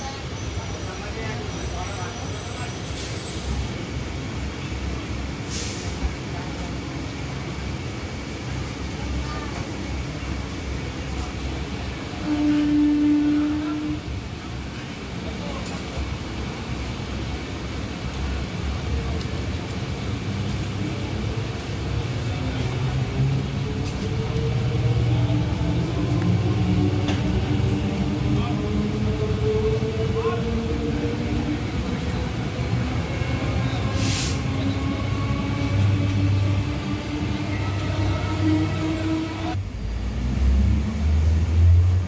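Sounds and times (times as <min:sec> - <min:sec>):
electric train rolling past: 0:00.0 - 0:42.0.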